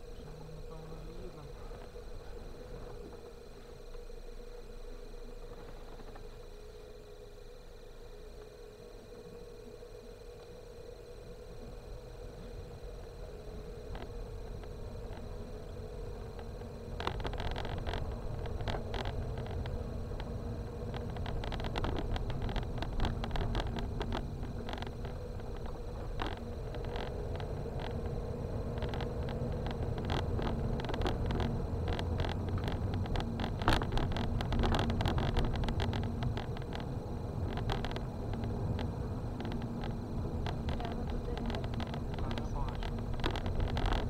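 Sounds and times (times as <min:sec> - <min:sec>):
car engine and tyres rumbling: 0:00.0 - 0:44.0
clicks and knocks from rough road: 0:05.4 - 0:06.5, 0:13.9 - 0:44.0.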